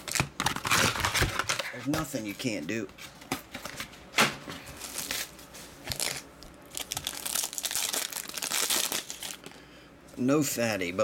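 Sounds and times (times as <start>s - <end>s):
plastic wrapping crinkling: 4.7s - 9.6s.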